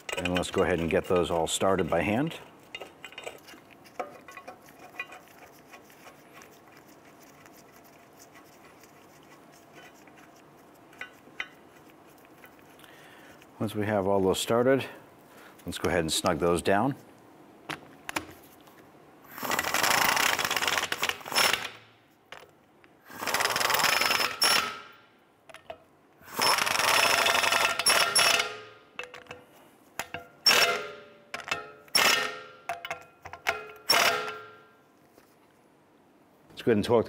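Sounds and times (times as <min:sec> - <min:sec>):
impact wrench hammering bursts: 0:19.4 - 0:21.8, 0:23.1 - 0:24.9, 0:26.3 - 0:28.7, 0:31.9 - 0:32.6, 0:33.5 - 0:34.6
impact wrench running: 0:19.4 - 0:21.8, 0:23.1 - 0:24.8, 0:26.3 - 0:28.6, 0:33.9 - 0:34.5.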